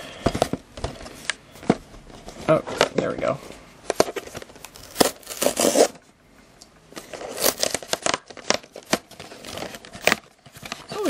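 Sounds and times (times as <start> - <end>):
paperboard box tearing: 4.7 - 6.0, 7.2 - 11.0.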